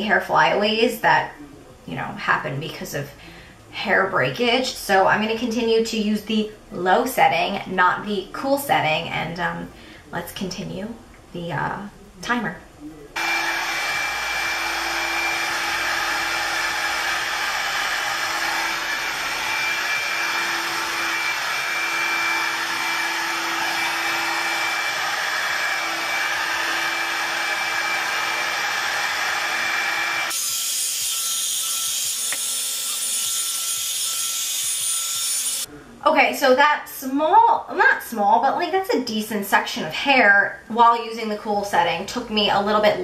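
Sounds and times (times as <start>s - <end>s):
hair dryer blowing: 13.2s - 35.7s.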